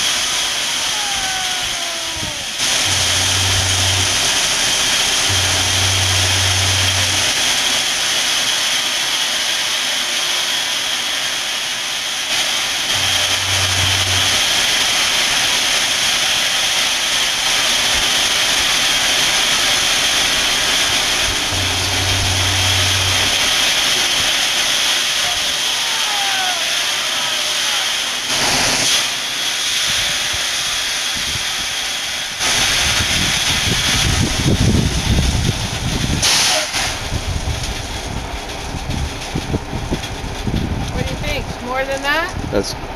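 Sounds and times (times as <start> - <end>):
gravel pouring from dump truck: 0.0 - 40.7
diesel engine running: 0.0 - 42.9
deep loud rumble: 1.0 - 8.0, 12.7 - 15.6, 19.3 - 24.7, 32.4 - 36.3, 36.9 - 42.9.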